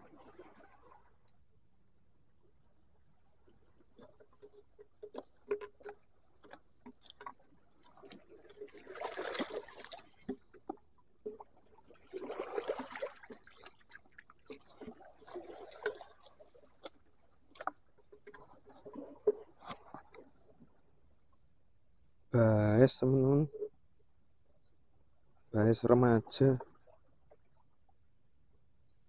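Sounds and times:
water sloshing and splashing: 0.0s - 1.6s, 2.3s - 21.5s, 26.3s - 28.1s.

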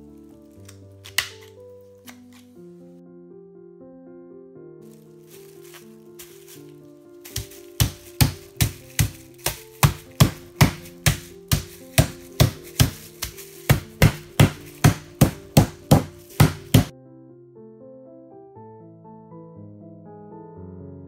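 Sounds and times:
background music: 0.0s - 21.0s
meat mallet pounding chicken: 7.3s - 16.9s.

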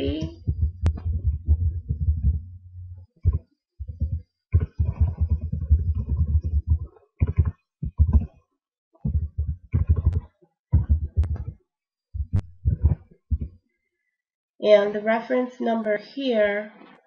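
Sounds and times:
typing on computer keyboard: 4.0s - 8.3s, 9.1s - 10.2s.

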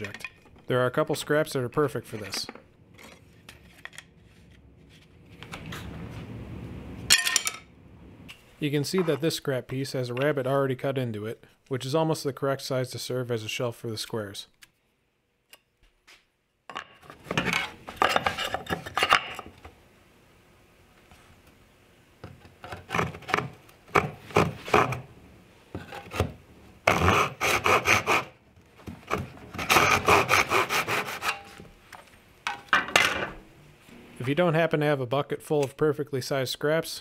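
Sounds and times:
handsaw cutting wood: 22.9s - 25.0s, 26.9s - 28.4s, 29.1s - 31.6s.

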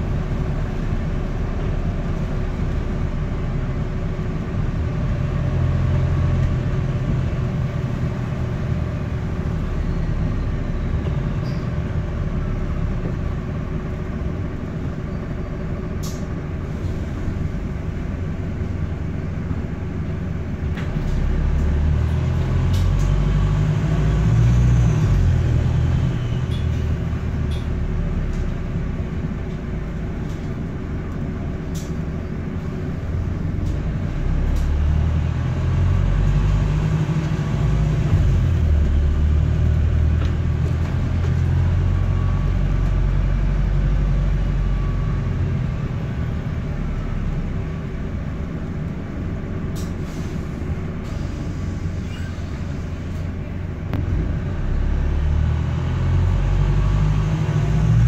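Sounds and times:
bus diesel engine rumbling: 0.0s - 58.0s.

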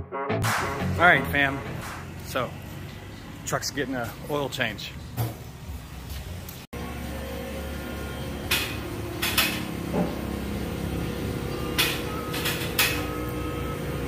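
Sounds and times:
machine hum: 6.8s - 14.0s.

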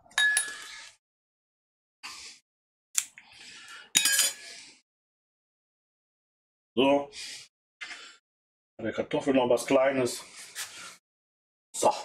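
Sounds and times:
metal utensils clinking on pans: 4.0s - 4.5s.

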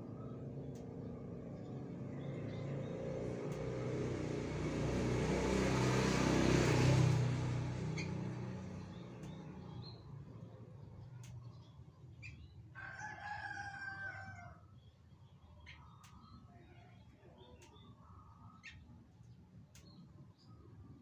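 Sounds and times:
vehicle passing by: 0.0s - 11.3s.

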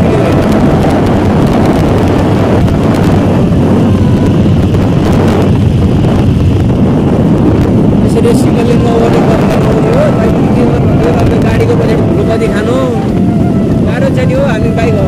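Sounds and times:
motorcycle engine cruising: 0.0s - 15.0s
wind buffeting microphone: 0.0s - 15.0s.

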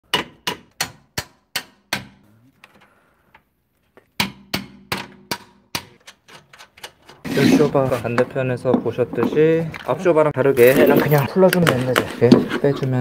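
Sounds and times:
hammer striking steel: 4.2s - 6.0s.

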